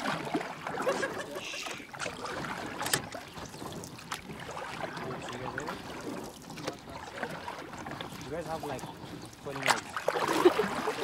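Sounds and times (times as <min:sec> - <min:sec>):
paddle wheel churning water: 0:00.0 - 0:11.0
sharp knocks from boat: 0:02.0 - 0:04.8, 0:09.6 - 0:10.3.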